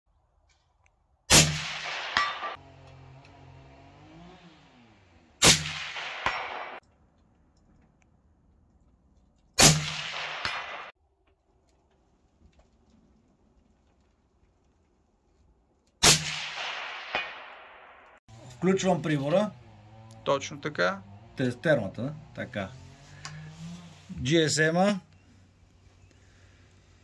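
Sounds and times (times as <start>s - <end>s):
metallic clang of steel target: 1.3s - 2.6s
suppressed rifle shots: 1.3s - 2.6s, 5.4s - 6.8s, 9.6s - 10.9s, 16.0s - 18.2s.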